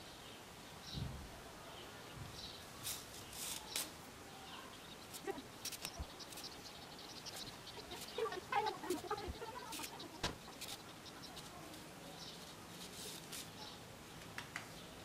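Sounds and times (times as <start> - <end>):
paper yarn scraping through stitches: 5.1 - 6.6, 7.3 - 11.9, 12.7 - 13.6.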